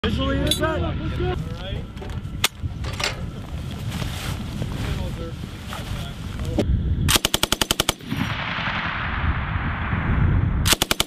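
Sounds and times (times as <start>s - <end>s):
machine gun bursts: 7.1s - 8.0s, 10.7s - 11.0s.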